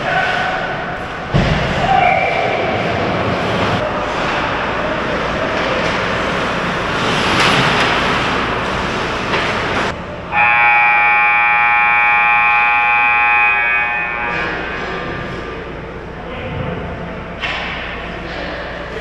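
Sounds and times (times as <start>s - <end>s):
skates scraping on ice: 2.2s - 9.9s
scoreboard buzzer: 10.3s - 14.5s.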